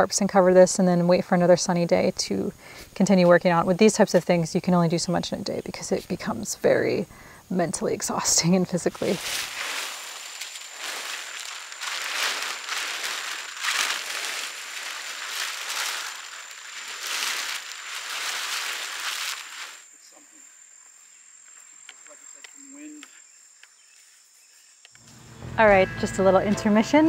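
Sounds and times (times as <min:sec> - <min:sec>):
faint outdoor background: 0:00.0 - 0:27.0
plastic tarp rustling and crackling: 0:08.2 - 0:19.9.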